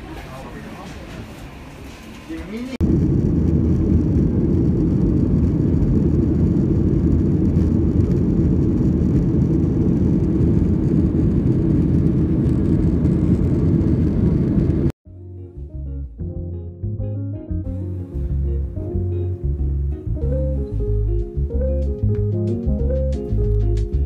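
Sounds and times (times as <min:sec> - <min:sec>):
airliner cabin engine rush: 0:00.0 - 0:15.0.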